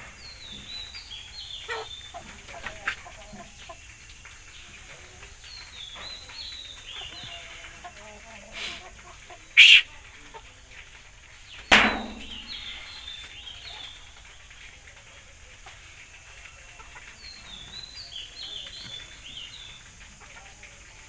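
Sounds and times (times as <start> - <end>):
high chick chirps: 0.2 - 10.4, 11.5 - 14.0
chicken squawking: 9.6 - 9.9.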